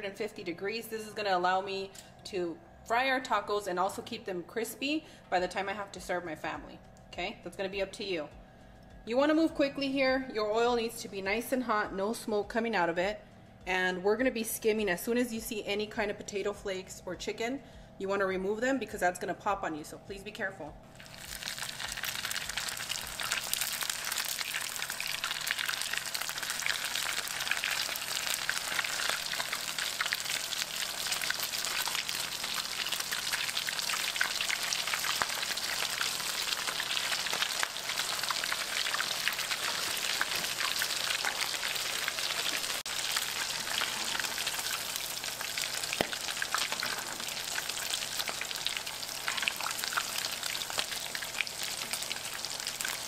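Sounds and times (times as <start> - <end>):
food deep-frying in oil: 21.0 - 53.0.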